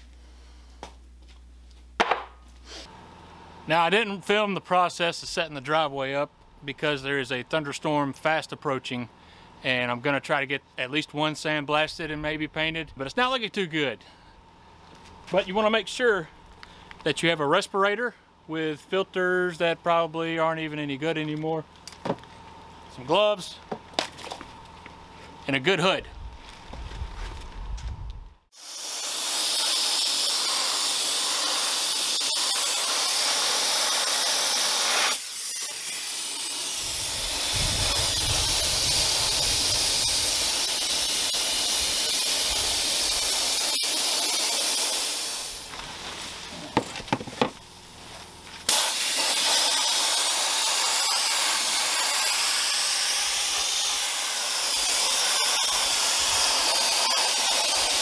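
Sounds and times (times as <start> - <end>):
sandblast gun hissing: 28.5 - 46.8, 48.6 - 58.0.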